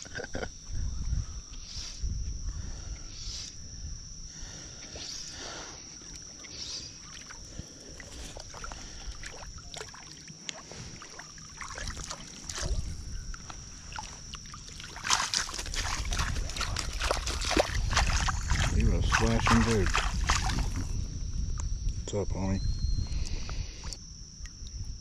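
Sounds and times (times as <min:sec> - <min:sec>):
thin high-pitched hum: 0:00.0 - 0:25.0
fish splashing in water: 0:06.3 - 0:12.9, 0:13.8 - 0:20.9.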